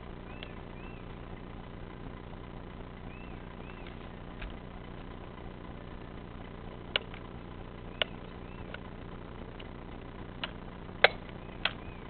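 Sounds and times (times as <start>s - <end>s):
chainsaw engine idling: 0.0s - 12.0s
sharp clicks: 0.3s - 1.0s, 6.4s - 12.0s.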